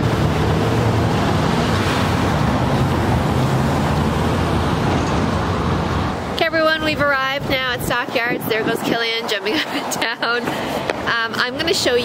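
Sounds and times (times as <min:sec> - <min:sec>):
busy street traffic: 0:00.0 - 0:12.0.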